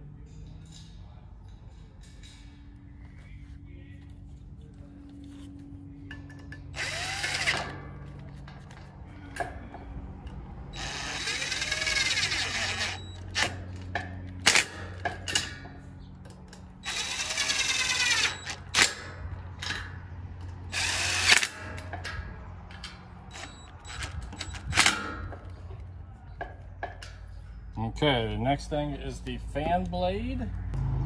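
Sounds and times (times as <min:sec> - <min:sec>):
cordless drill whining: 0:06.8 - 0:07.7, 0:10.8 - 0:13.3, 0:16.8 - 0:18.6, 0:20.7 - 0:21.4.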